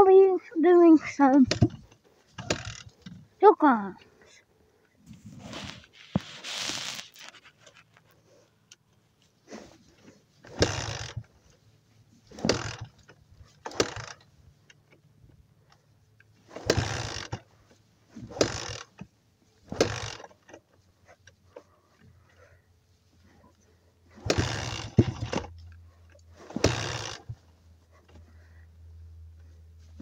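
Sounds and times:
dirt bike kick-start: 0:01.2 - 0:03.2, 0:10.4 - 0:11.4, 0:12.3 - 0:14.3, 0:16.4 - 0:17.5, 0:18.2 - 0:20.7, 0:24.1 - 0:25.6, 0:26.2 - 0:28.2.

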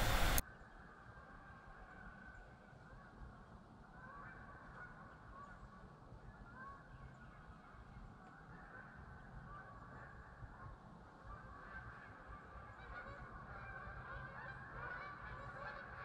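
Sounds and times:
geese honking: 0:03.9 - 0:05.7, 0:11.2 - 0:16.0.

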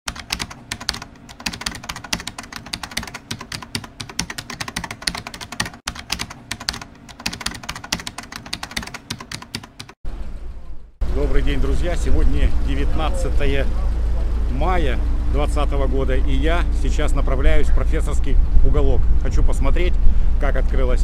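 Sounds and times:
keyboard typing clicks: 0:00.1 - 0:10.0.

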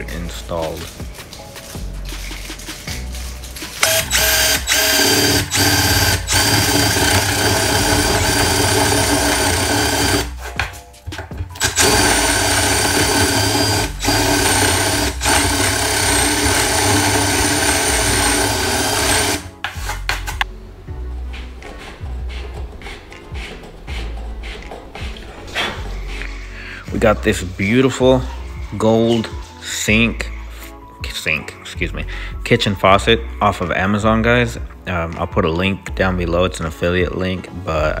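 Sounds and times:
power drill boring wood: 0:03.8 - 0:10.4, 0:11.6 - 0:19.5.

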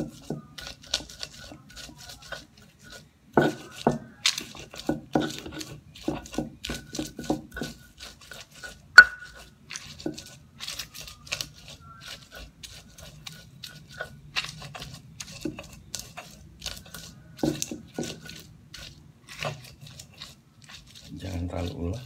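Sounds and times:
stone pestle grinding in mortar: 0:00.0 - 0:22.0
sharp knock of stone: 0:09.0 - 0:09.3.

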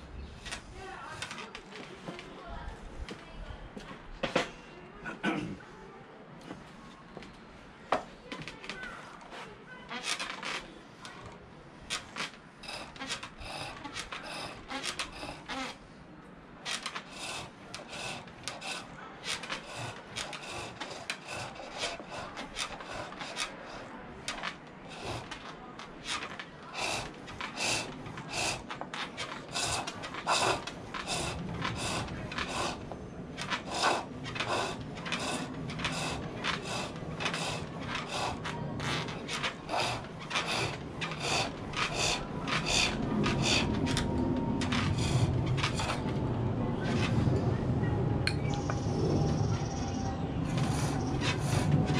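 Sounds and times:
hand tool scraping wood on lathe: 0:11.9 - 0:15.8, 0:16.7 - 0:46.2, 0:50.5 - 0:51.9.

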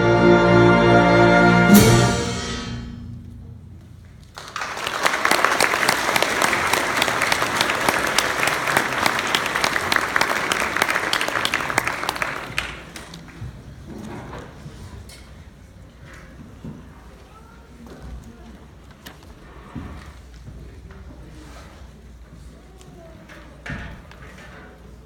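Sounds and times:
concert band held chord: 0:00.0 - 0:11.2
sharp percussion hit: 0:01.6 - 0:04.6
audience applauding: 0:04.3 - 0:13.4.

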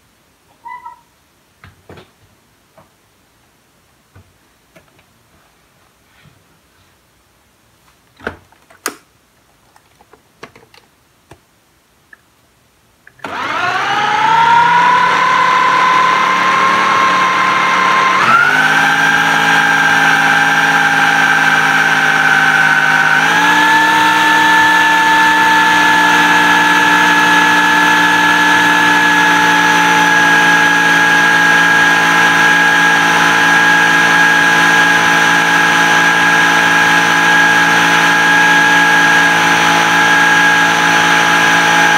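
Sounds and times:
blender motor grinding: 0:13.2 - 0:41.9.

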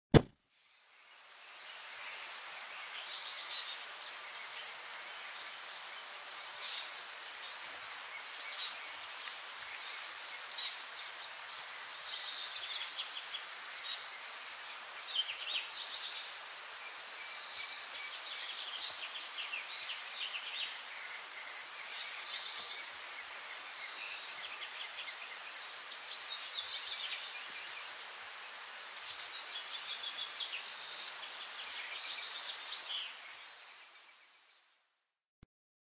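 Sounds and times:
steady outdoor hiss: 0:00.2 - 0:35.1.

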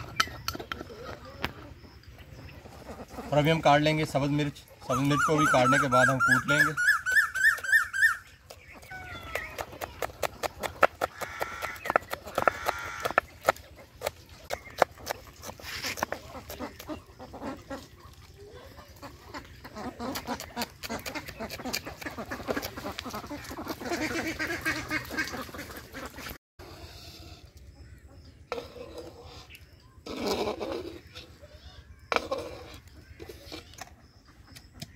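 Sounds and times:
ducks quacking: 0:00.0 - 0:08.2, 0:10.5 - 0:26.4.

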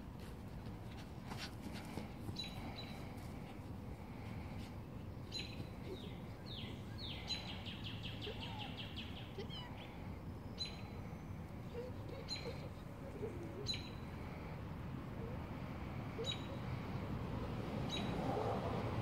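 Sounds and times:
low background hum: 0:00.0 - 0:18.5
songbirds chirping: 0:00.5 - 0:19.0.

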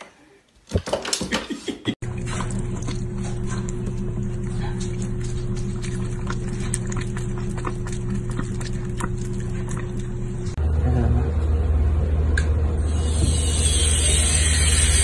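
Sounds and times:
cat lapping water: 0:02.0 - 0:10.5.

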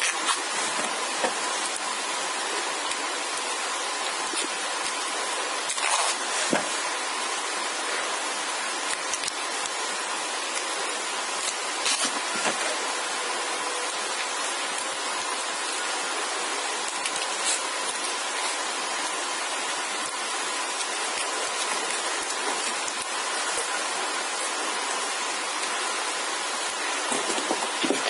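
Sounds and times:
hands wrapping tape rustling: 0:00.0 - 0:01.8, 0:02.8 - 0:06.8, 0:11.3 - 0:12.6, 0:16.8 - 0:25.0
steady hiss: 0:00.0 - 0:28.0.

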